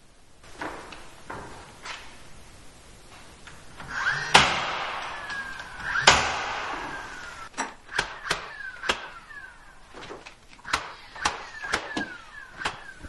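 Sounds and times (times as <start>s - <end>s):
stapler firing into wood: 4.0s - 7.3s, 7.9s - 9.4s, 10.1s - 13.0s.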